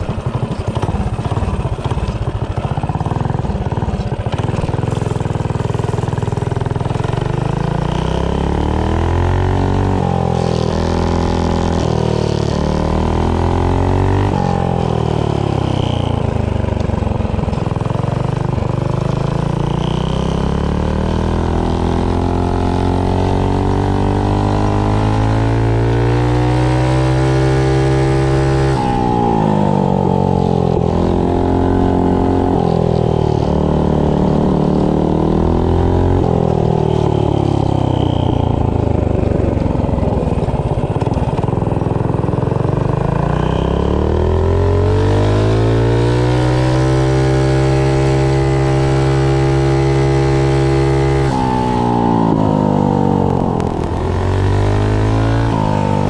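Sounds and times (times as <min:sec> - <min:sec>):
minibike engine running: 0:00.0 - 0:08.2, 0:29.0 - 0:44.0, 0:53.2 - 0:54.5.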